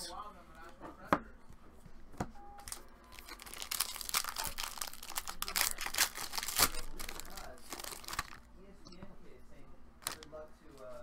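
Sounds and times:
foil wrapper crinkling and tearing: 2.6s - 8.4s, 10.0s - 10.3s.

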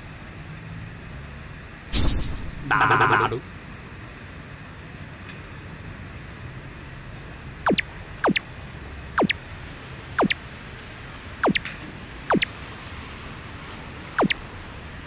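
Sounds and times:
falling electronic sound effect: 2.0s - 3.4s, 7.7s - 8.4s, 9.2s - 9.4s, 10.2s - 10.4s, 11.4s - 11.7s, 12.3s - 12.6s, 14.2s - 14.4s.

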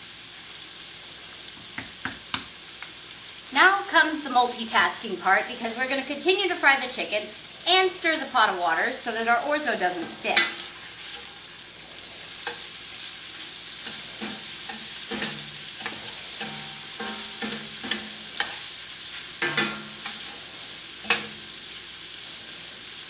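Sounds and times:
chicken sizzling in hot oil: 0.0s - 23.0s
spatula scraping and knocking pan: 9.7s - 11.6s, 12.3s - 21.6s.

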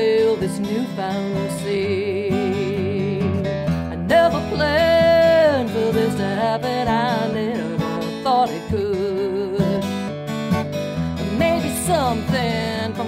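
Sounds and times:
person singing: 0.0s - 10.0s, 11.2s - 13.0s
strummed acoustic guitar: 0.0s - 13.0s.

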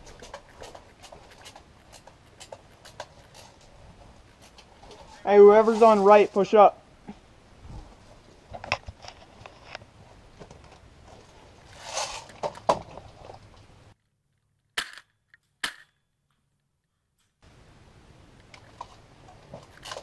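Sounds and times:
rustling: 0.0s - 13.7s.

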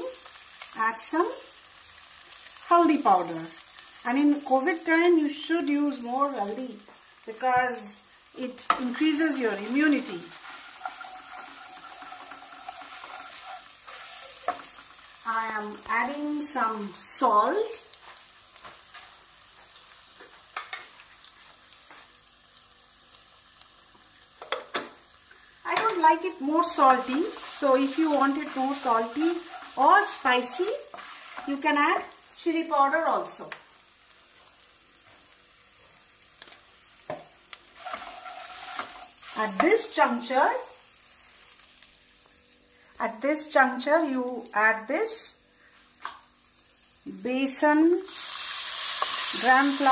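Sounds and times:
spices sizzling in hot fat: 0.0s - 49.9s
wooden spatula stirring: 9.6s - 14.8s, 26.9s - 31.6s, 37.8s - 39.1s.

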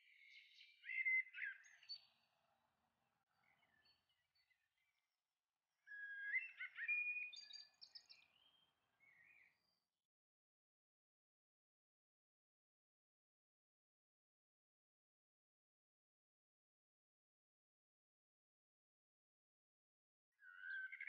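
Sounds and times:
songbird singing: 0.0s - 2.3s, 5.9s - 9.8s, 20.4s - 21.0s.

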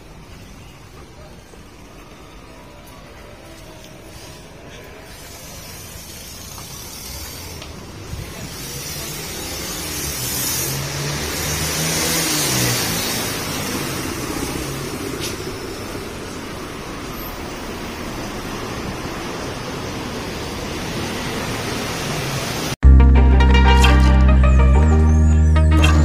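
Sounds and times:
vehicle passing: 8.4s - 15.5s.

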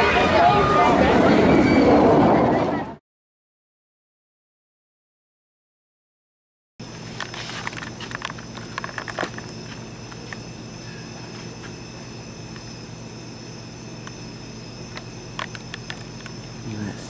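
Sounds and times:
crickets chirping: 6.8s - 17.0s
low hum: 6.8s - 17.0s.

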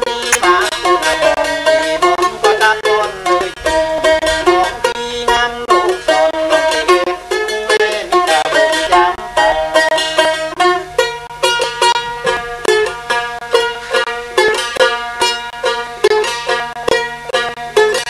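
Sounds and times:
person singing: 0.0s - 10.9s
plucked lute folk melody: 0.0s - 18.0s.

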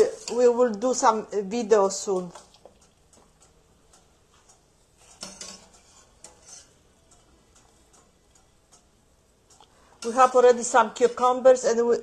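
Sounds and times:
metal utensil clinking on cookware: 5.0s - 6.8s.

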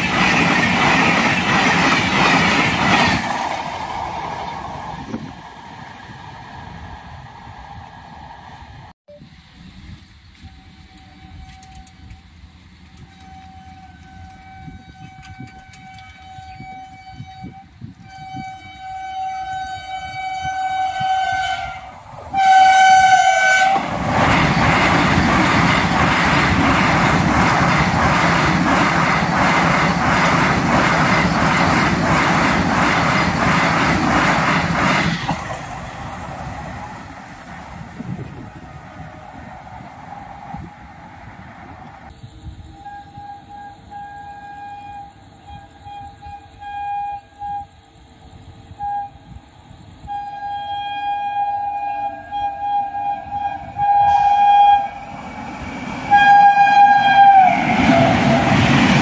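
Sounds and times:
train wheels clattering on rails: 0.0s - 5.4s, 9.9s - 17.3s, 23.4s - 38.6s, 54.0s - 59.0s
train horn blasts: 10.4s - 12.3s, 13.0s - 24.9s, 42.6s - 55.2s, 56.0s - 58.8s.

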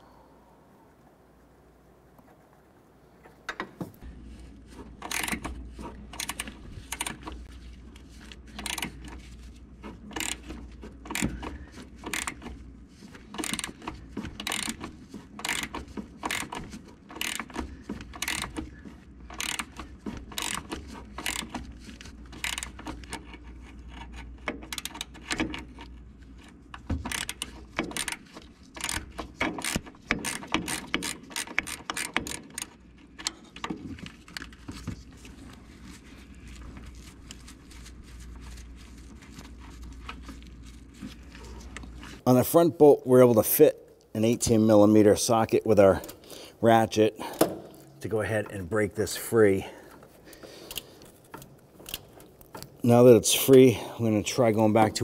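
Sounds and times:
ratcheting wrench clicking: 5.0s - 7.4s, 8.5s - 9.0s, 9.8s - 12.6s, 13.2s - 18.7s, 19.3s - 21.7s, 22.3s - 25.9s, 27.0s - 33.7s.

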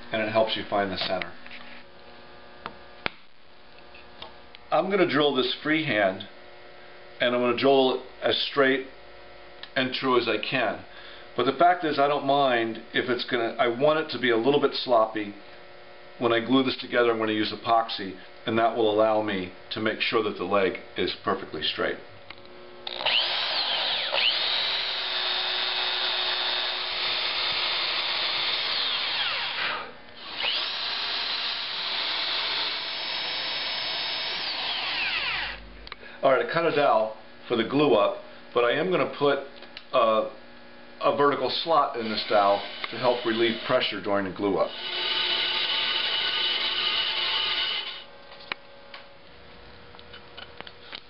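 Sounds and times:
electric drill boring into wood: 22.9s - 35.6s, 42.0s - 43.9s, 44.6s - 48.1s
saw rasping through wood: 44.6s - 48.0s.

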